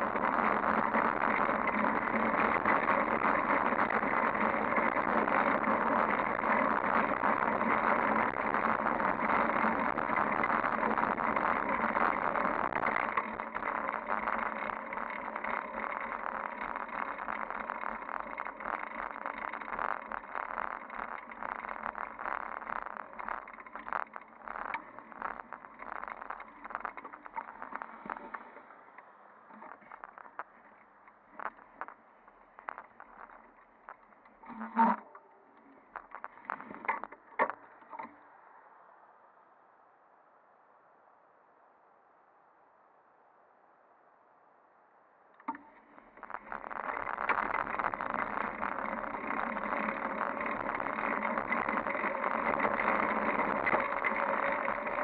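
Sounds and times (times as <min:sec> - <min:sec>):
bicycle clicks and rattles: 0:00.0 - 0:38.2, 0:45.4 - 0:55.0
bicycle tyre noise: 0:00.0 - 0:38.2, 0:45.4 - 0:55.0.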